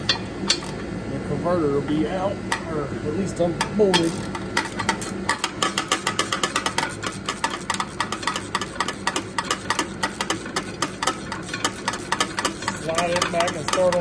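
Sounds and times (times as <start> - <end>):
ratchet wrench clicking: 3.6 - 14.0.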